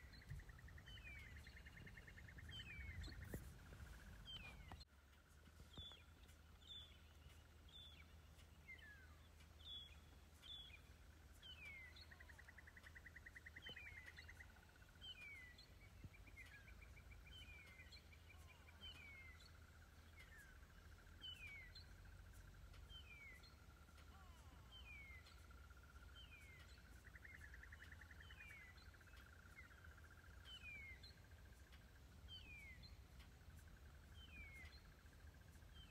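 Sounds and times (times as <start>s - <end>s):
low rumble: 0.0s - 11.3s.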